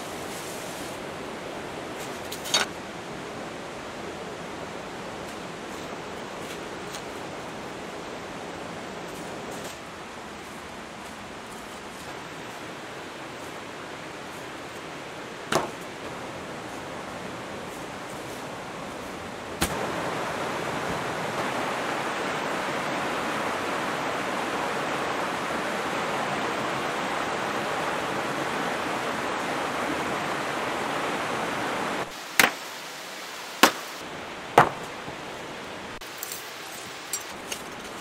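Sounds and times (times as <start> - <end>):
stream rushing over boulders: 0.0 - 38.0
sharp knocks: 15.5 - 15.8, 34.6 - 34.9.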